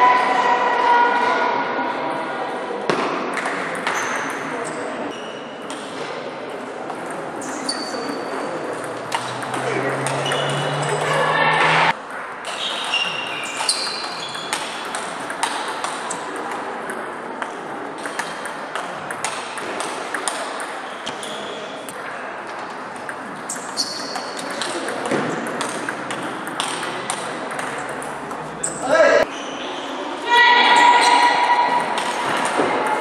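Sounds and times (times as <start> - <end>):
shoes squeaking on floor: 7.4 - 11.9, 12.5 - 14.8, 20.8 - 21.9, 23.4 - 24.5, 28.5 - 30.0
table tennis ball clicking: 23.0 - 28.4.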